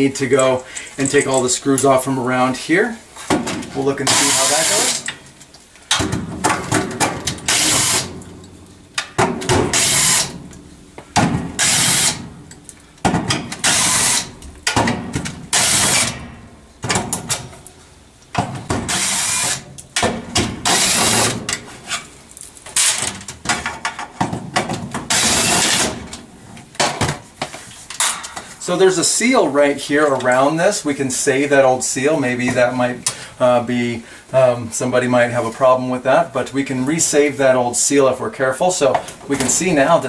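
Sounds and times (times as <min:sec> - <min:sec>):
cordless drill bursts: 0:04.1 - 0:05.0, 0:07.5 - 0:08.1, 0:09.7 - 0:10.3, 0:11.6 - 0:12.2, 0:13.6 - 0:14.3, 0:15.5 - 0:16.2, 0:18.9 - 0:19.6, 0:20.7 - 0:21.4, 0:25.1 - 0:26.0.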